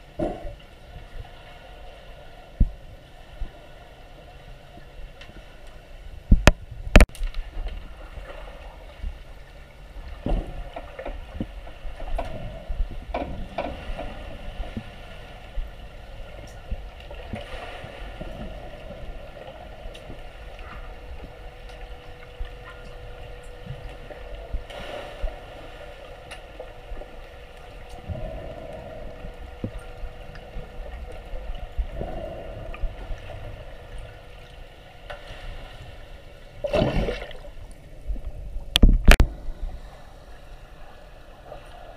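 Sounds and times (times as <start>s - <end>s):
faint steady hum: 0.0s - 41.9s
muffled underwater water wash: 0.0s - 41.9s
knocks and clicks underwater: 0.1s - 0.6s, 6.3s - 8.4s, 10.0s - 15.0s, 27.8s - 34.1s, 36.6s - 39.7s
rush of water: 36.6s - 37.7s.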